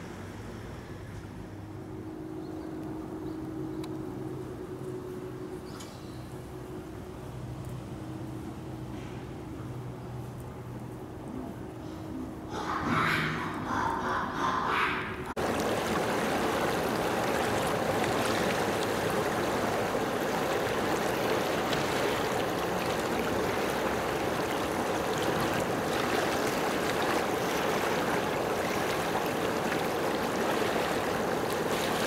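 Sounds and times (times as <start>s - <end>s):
water rushing: 15.2s - 32.0s.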